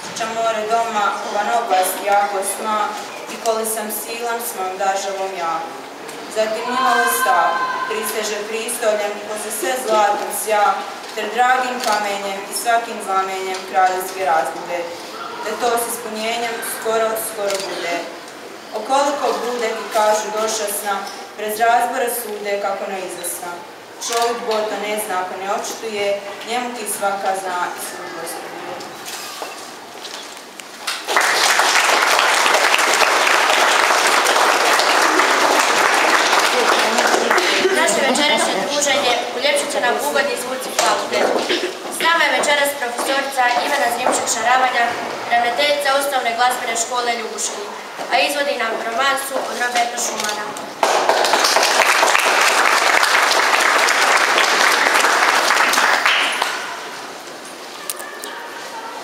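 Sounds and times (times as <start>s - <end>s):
audience applauding: 30.8s - 38.9s, 50.8s - 57.0s.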